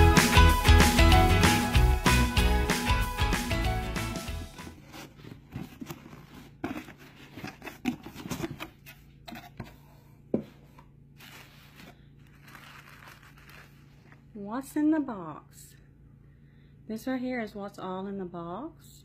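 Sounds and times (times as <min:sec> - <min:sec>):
cardboard lid scraping: 0:04.6 - 0:09.8.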